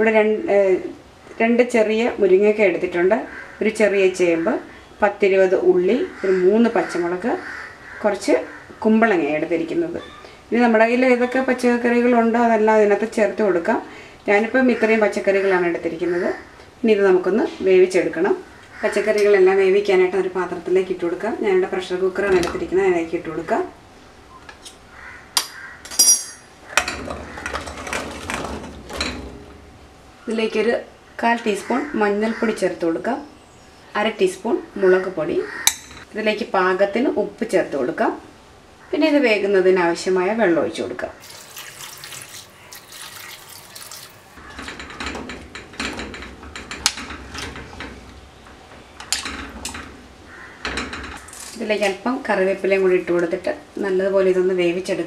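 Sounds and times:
vegetables clattering into pot: 0:25.4 - 0:29.6
water pouring into a pot: 0:41.2 - 0:44.4.

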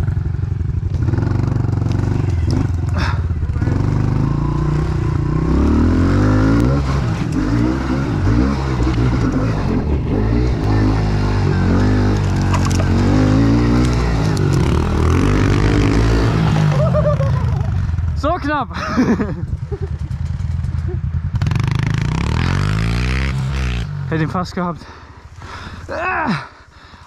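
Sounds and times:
motorbike engine revving: 0:00.0 - 0:26.1.

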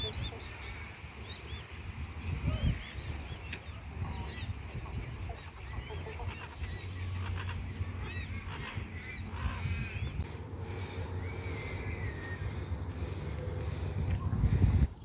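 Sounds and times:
birds chirping: 0:00.0 - 0:15.0
ducks quacking: 0:02.3 - 0:13.9.

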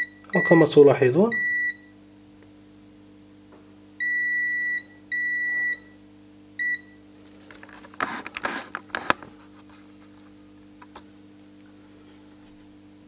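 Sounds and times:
multimeter continuity buzzer beeping: 0:00.0 - 0:02.0, 0:04.0 - 0:06.0, 0:06.6 - 0:07.0.

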